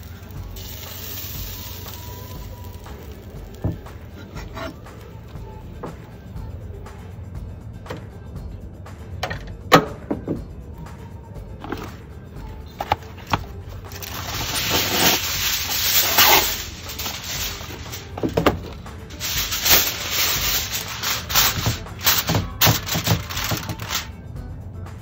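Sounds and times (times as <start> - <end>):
aluminum foil crinkling: 0.0 - 3.9, 13.8 - 24.1
aluminum foil tearing: 13.9 - 24.1.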